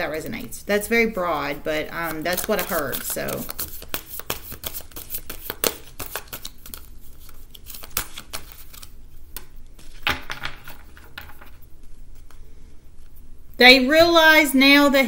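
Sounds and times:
cards shuffling: 1.9 - 12.4.

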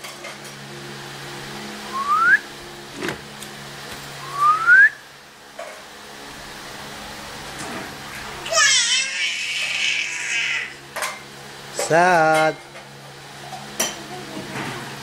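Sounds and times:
steady low hum: 0.0 - 8.5
person whistling rising notes: 1.9 - 2.5, 4.2 - 5.0.

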